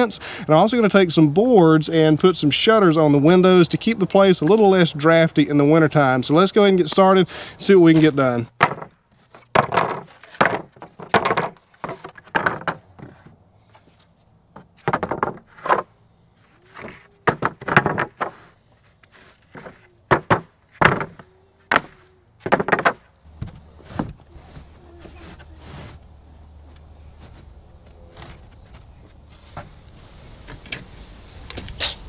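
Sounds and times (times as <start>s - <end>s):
wooden pickets clattering: 7.6s - 24.2s.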